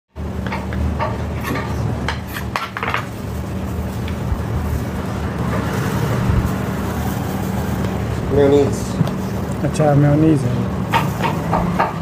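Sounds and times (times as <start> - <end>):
constant low hum: 0.1 - 12.0
low background rumble: 0.2 - 9.7.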